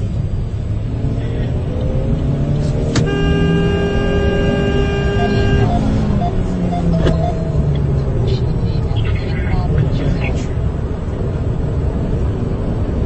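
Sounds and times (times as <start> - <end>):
car engine and road noise: 0.0 - 13.0
car horn blast: 3.0 - 7.3.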